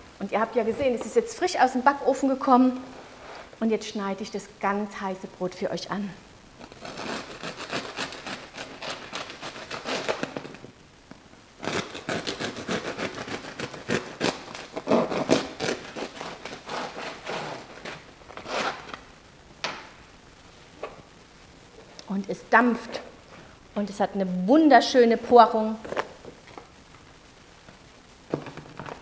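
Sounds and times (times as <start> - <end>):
bread knife sawing crusty loaf: 6.8 - 10.3, 11.6 - 18.8.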